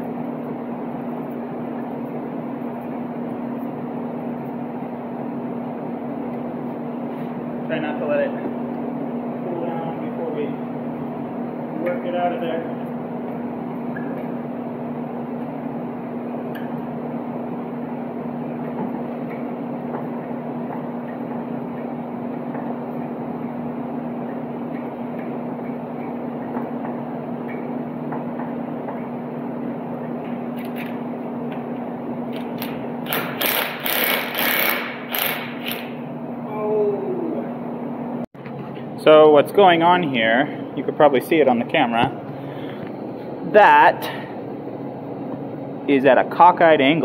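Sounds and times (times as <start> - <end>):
machine hum: 0.0 - 47.0
impact wrench hammering: 32.3 - 36.0.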